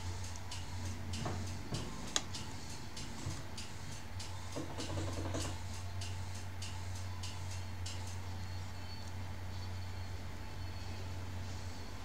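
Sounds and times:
faint regular ticking: 0.0 - 8.2
steady low hum: 0.0 - 12.0.

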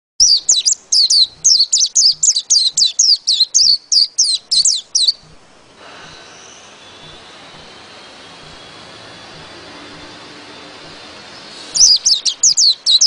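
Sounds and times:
bird singing high whistled notes: 0.2 - 5.4, 8.4 - 13.0.

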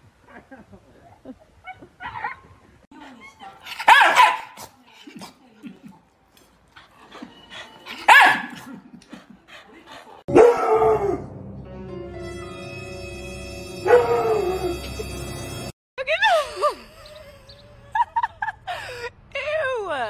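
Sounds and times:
dog barking: 3.8 - 4.6, 8.0 - 8.6, 10.3 - 11.2.

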